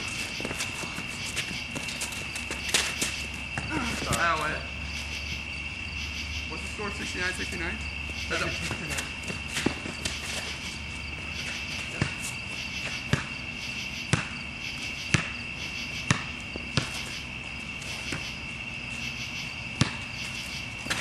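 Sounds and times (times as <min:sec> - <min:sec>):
basketball bouncing: 0:00.0 - 0:04.4, 0:11.1 - 0:13.4, 0:14.0 - 0:14.4, 0:15.0 - 0:17.2, 0:19.8 - 0:21.0
crickets chirring: 0:00.0 - 0:21.0.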